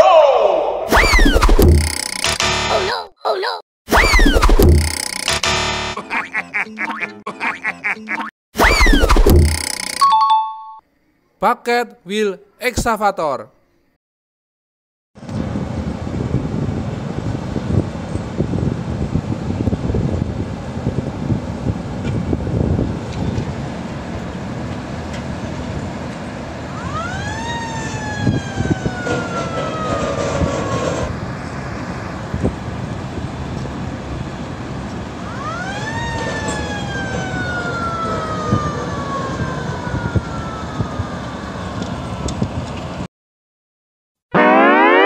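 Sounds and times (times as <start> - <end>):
siren wailing: 0.9 - 2.9, 26.7 - 30.7, 35.2 - 41.7, 44.3 - 45.0.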